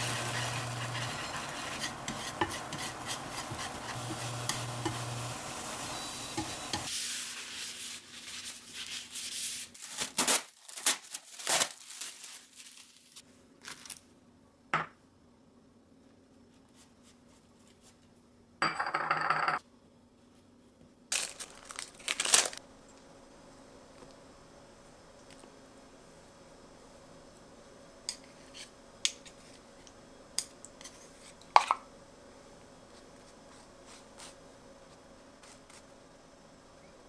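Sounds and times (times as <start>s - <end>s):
paper towel rubbing on board: 0.0s - 4.4s
plastic wrap crinkling: 7.0s - 14.1s, 21.1s - 22.6s.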